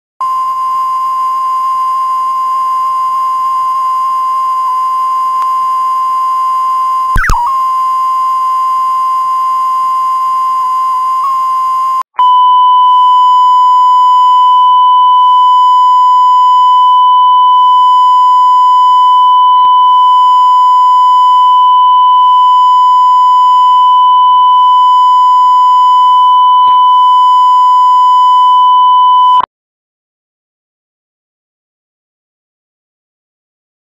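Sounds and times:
brief click: 0:07.2 - 0:07.5
steady test tone: 0:07.2 - 0:07.6.

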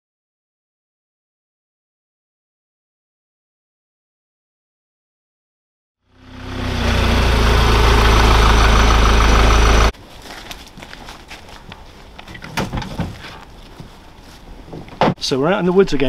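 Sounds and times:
vehicle engine rumbling: 0:06.1 - 0:10.0
gun cases knocking and rustling: 0:10.2 - 0:14.1.

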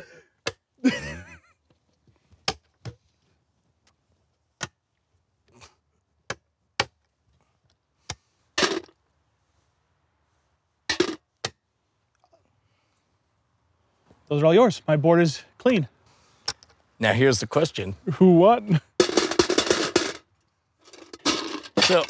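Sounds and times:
coins clattering: 0:19.0 - 0:20.2, 0:20.9 - 0:22.0.

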